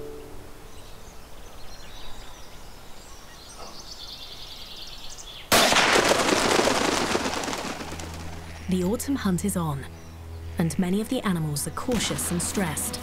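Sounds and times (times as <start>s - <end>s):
faint bird chirps: 0.0s - 5.5s
loud gunshot with rolling crackle: 5.5s - 8.3s.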